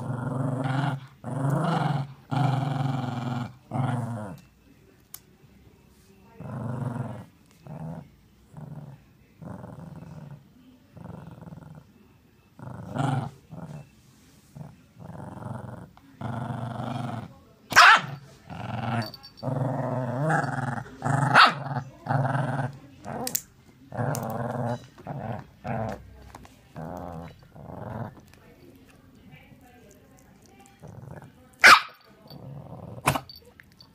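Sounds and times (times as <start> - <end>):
dog growling: 0.0 - 4.5, 6.4 - 11.9, 12.5 - 13.9, 14.5 - 17.3, 18.0 - 28.4, 30.4 - 31.4, 32.2 - 33.4
dog barking: 17.7 - 18.2, 21.3 - 21.7, 31.6 - 32.1.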